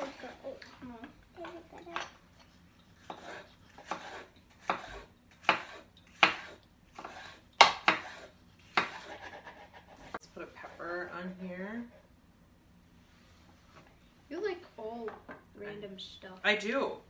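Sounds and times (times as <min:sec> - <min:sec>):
knife chopping on wooden board: 0:03.0 - 0:10.2.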